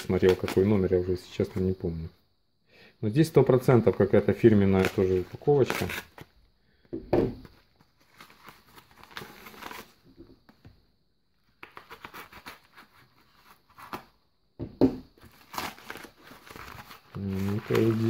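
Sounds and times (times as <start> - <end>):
plastic packaging crinkling: 15.2 - 18.0.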